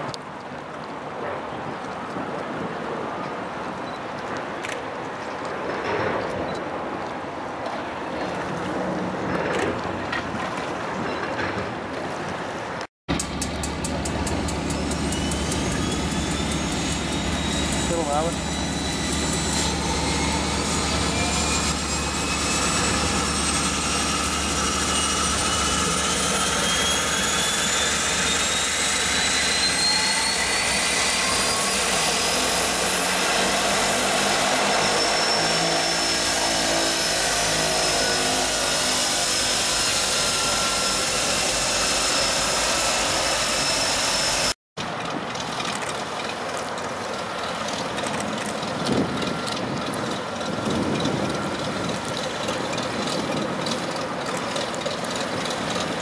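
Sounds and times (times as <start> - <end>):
turbine engine whine: 13.1 - 56.0
piston engine plane taxiing: 30.3 - 56.0.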